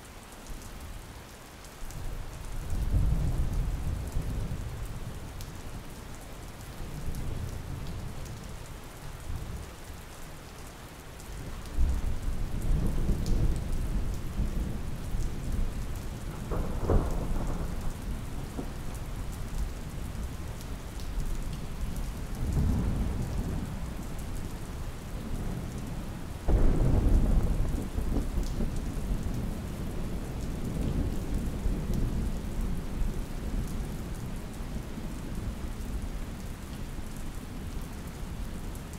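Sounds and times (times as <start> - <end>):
steady rain: 0.0 - 38.9
thunder rolling: 26.5 - 28.7.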